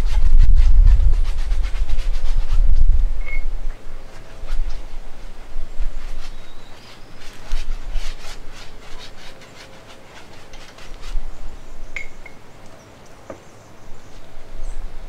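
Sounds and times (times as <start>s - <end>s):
brush scrubbing on canvas: 0.0s - 3.1s, 4.0s - 11.7s.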